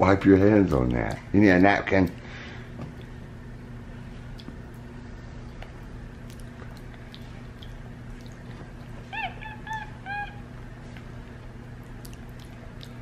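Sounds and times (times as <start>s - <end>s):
faint eating clicks: 4.3s - 9.0s, 10.9s - 13.0s
monkey high-pitched calls: 9.1s - 10.6s.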